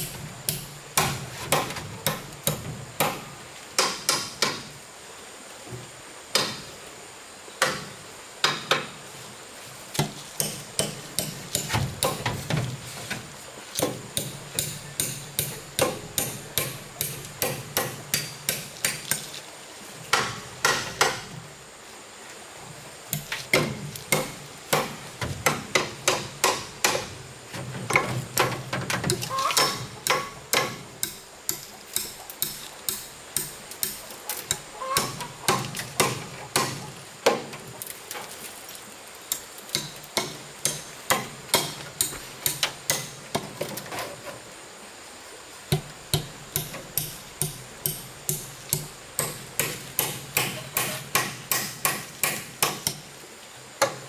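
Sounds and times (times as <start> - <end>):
hammering blows: 13.8 - 19.0, 20.1 - 21.3, 23.2 - 27.1, 45.7 - 53.0.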